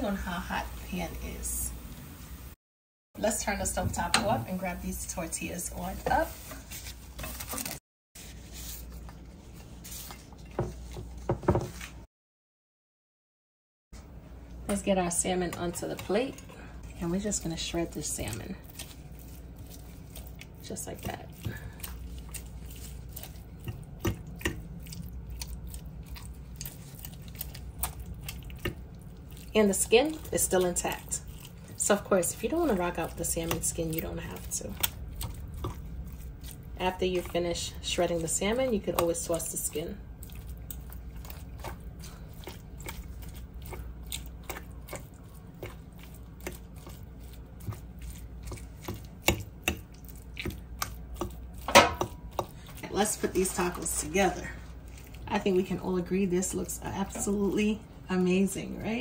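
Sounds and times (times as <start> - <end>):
low steady hum: 14.0 - 59.0.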